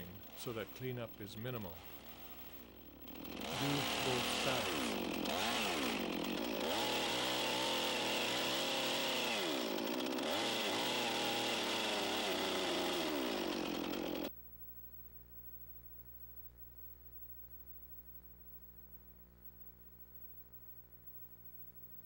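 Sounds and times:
chainsaw cutting wood: 0:00.0 - 0:14.3
faint hum: 0:14.3 - 0:22.0.

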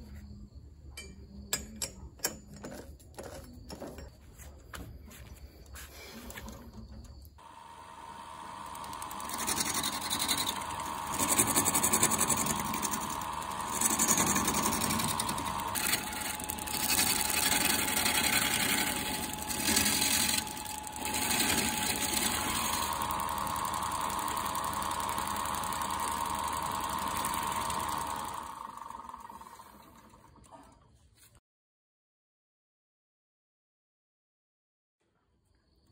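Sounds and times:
lathe motor whine: 0:07.4 - 0:30.4
turning tool scraping wood: 0:08.4 - 0:28.6.

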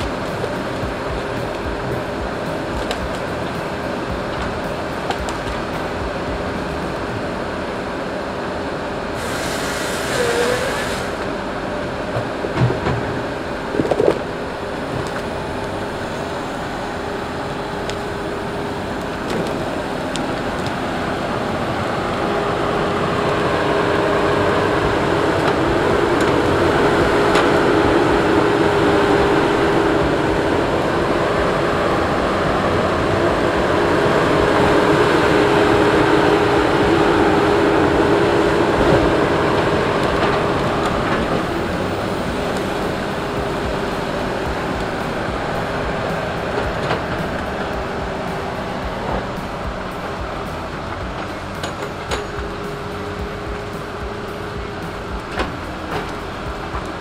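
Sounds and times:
diesel engines of logging machines: 0:00.0 - 0:57.0
steady machine whine: 0:00.0 - 0:57.0.

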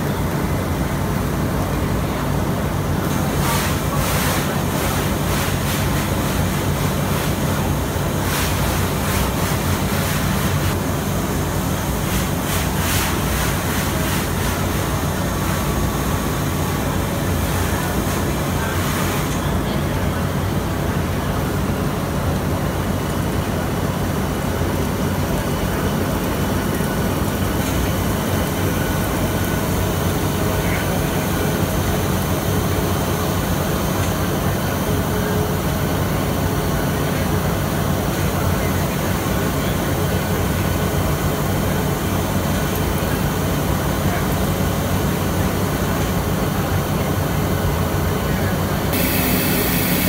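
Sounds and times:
machine humming and rumbling: 0:00.0 - 0:50.0
machine hiss: 0:49.0 - 0:50.0.

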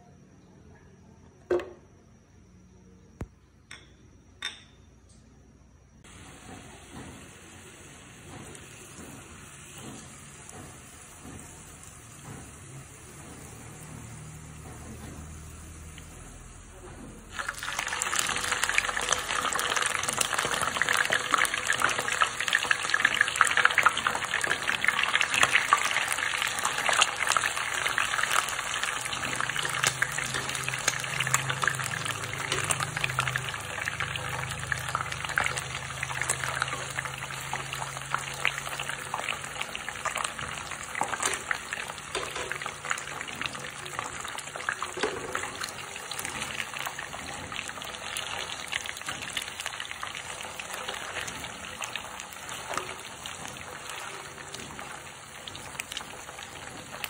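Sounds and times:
fish sizzling in hot oil: 0:06.0 - 0:57.0.

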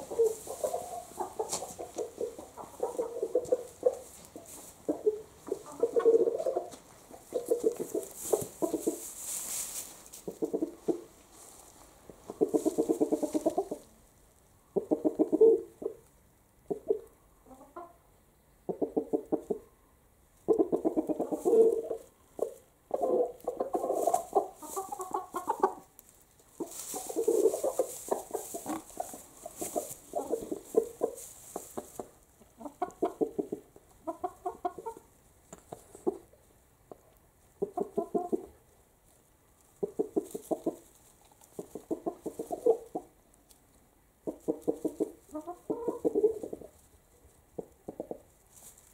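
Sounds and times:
chickens clucking: 0:00.0 - 0:48.9.

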